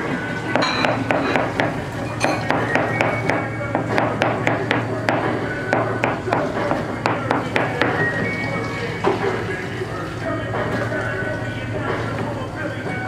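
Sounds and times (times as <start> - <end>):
knife chopping on plastic board: 0.5 - 8.0.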